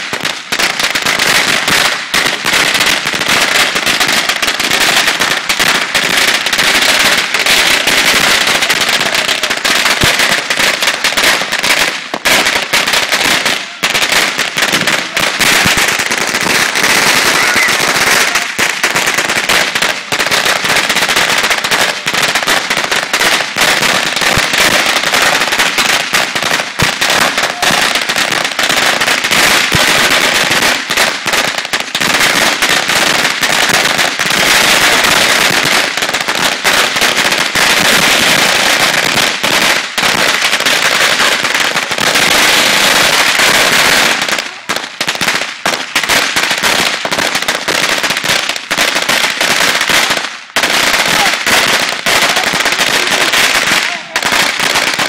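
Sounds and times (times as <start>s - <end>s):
fireworks cracking and popping: 0.0s - 55.0s.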